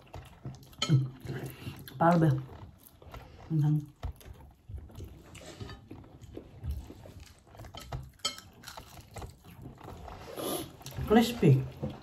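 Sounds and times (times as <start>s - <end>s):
dishes and cutlery clattering: 7.6s - 9.0s.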